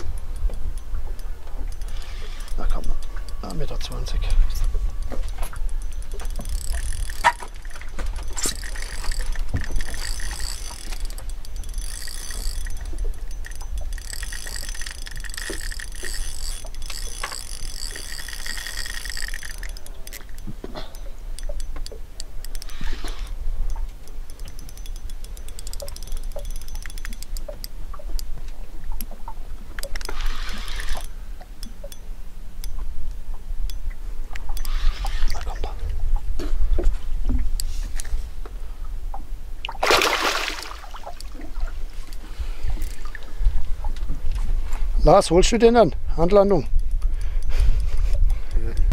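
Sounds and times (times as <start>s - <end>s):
fishing reel whirring: 0.0s - 28.3s, 29.8s - 32.8s, 33.7s - 35.7s, 42.0s - 43.3s.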